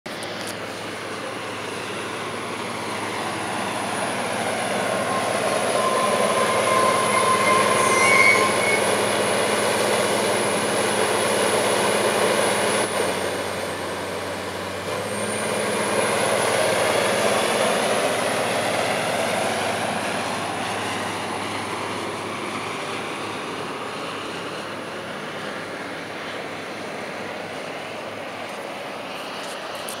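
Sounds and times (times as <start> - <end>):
locomotive engine running: 0.1 - 30.0
train wheels on track: 0.1 - 30.0
short squealing tones: 4.8 - 9.2.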